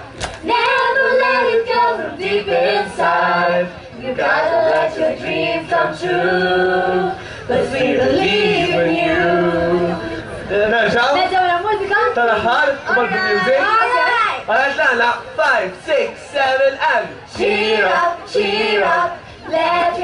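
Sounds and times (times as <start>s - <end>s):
group singing pop song: 0.4s - 11.0s, 16.4s - 20.0s.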